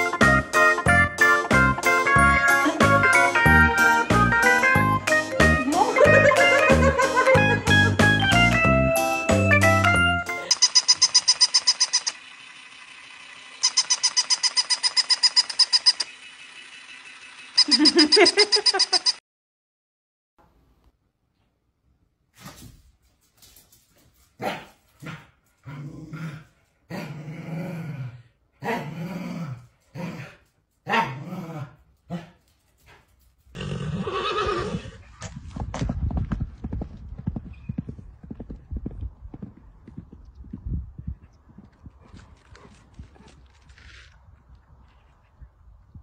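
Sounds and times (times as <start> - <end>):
toy high-pitched electronic chirps: 10.4 - 12.6, 13.5 - 19.2
dog barking: 24.4 - 25.2, 30.8 - 31.2
dog growling: 25.0 - 32.4.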